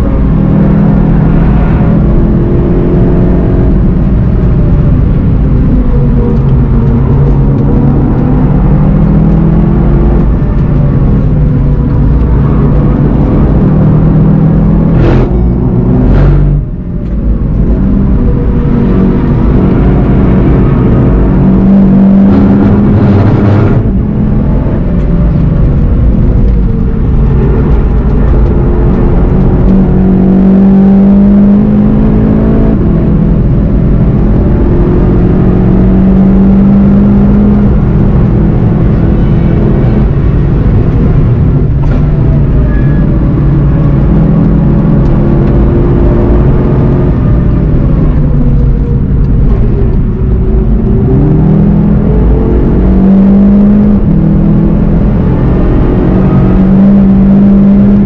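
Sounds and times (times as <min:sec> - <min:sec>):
car engine running hard: 0:00.0 - 0:58.0.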